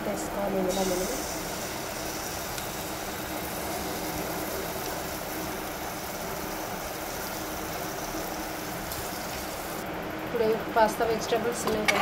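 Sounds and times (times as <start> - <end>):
gas burner rushing: 0.0 - 9.8.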